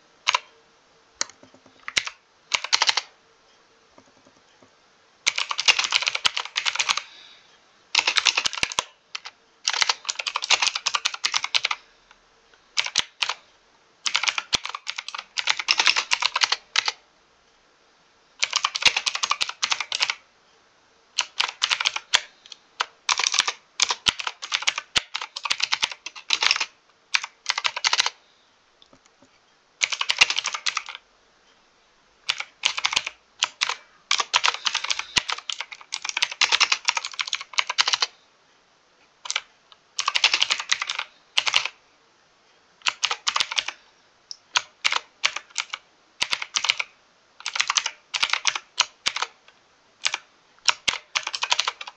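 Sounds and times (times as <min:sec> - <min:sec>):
mechanical keyboard typing: 0:00.2 - 0:00.5, 0:01.2 - 0:03.2, 0:04.0 - 0:04.6, 0:05.3 - 0:07.1, 0:07.9 - 0:11.8, 0:12.8 - 0:13.4, 0:14.0 - 0:17.0, 0:18.4 - 0:20.2, 0:21.2 - 0:28.2, 0:29.8 - 0:31.0, 0:32.3 - 0:38.1, 0:39.2 - 0:41.8, 0:42.8 - 0:49.4, 0:50.0 - 0:51.9.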